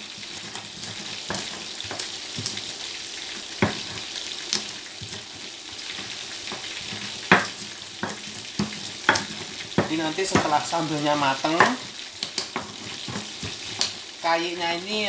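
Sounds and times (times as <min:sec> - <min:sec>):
chicken sizzling in oil: 0:00.0 - 0:15.0
pestle grinding in stone mortar: 0:06.5 - 0:10.6.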